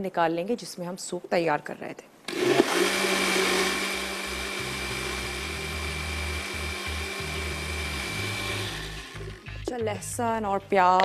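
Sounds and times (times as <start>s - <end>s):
blender motor humming: 2.3s - 9.6s.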